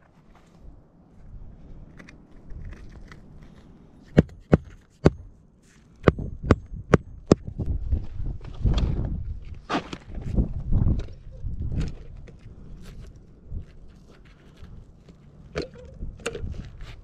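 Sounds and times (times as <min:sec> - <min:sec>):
hatchet striking nails into shingles: 0:04.1 - 0:05.3.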